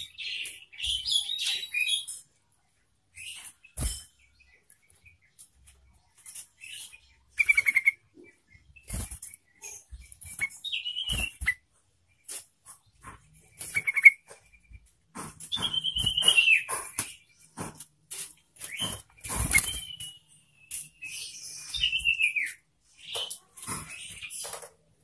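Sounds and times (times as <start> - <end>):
bird singing whistled notes: 10.3 - 11.6, 15.5 - 16.7, 18.7 - 23.4
sharp clicks and knocks: 12.3 - 19.8.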